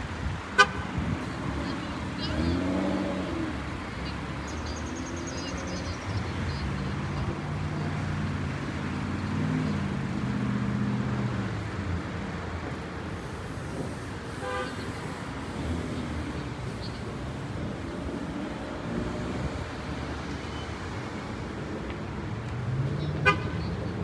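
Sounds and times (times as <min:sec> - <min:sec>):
road traffic rumble: 0:00.0 - 0:24.0
vehicle engine passing: 0:01.0 - 0:12.4.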